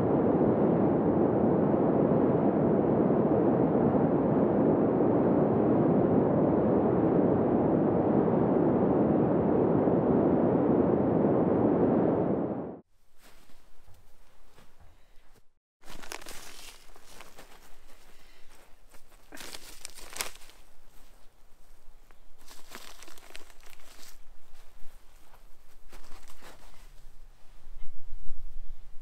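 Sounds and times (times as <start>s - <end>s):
faint crackles: 13.0s - 27.6s.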